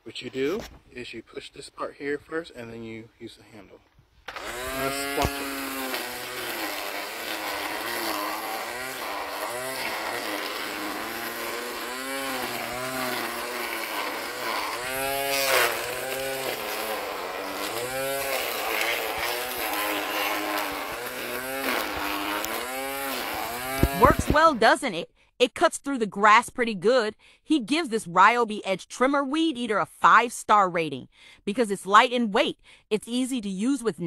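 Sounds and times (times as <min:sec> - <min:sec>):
string trimmer cutting grass: 0:04.2 - 0:24.8.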